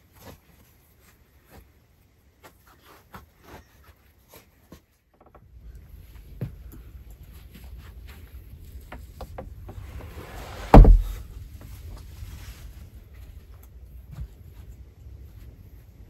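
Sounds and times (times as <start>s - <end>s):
light knocks: 8.9s - 11.2s
door scraping: 9.4s - 11.3s
heavy wooden door thud: 9.7s - 11.3s.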